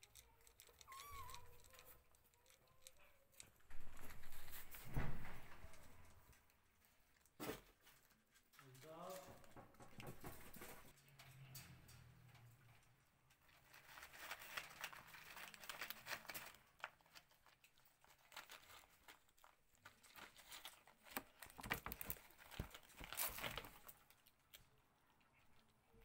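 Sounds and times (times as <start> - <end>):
cats crunching dry kibble: 0.0 - 4.8, 13.3 - 26.0
crinkly clicks of paper plate: 0.0 - 10.9, 13.4 - 24.7.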